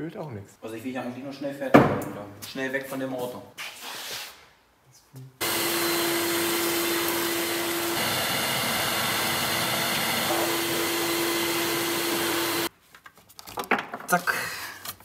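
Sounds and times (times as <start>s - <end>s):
vacuum cleaner running: 5.4s - 12.7s.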